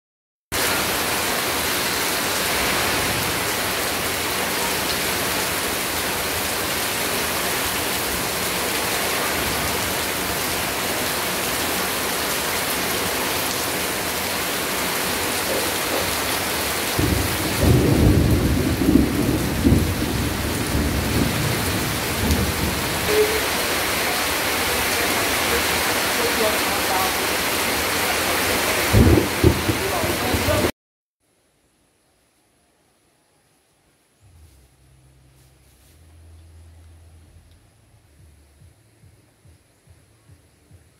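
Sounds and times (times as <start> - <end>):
heavy rain on leaves and concrete: 0.5 - 30.7
thunder rumbling: 16.9 - 23.8, 28.9 - 30.7.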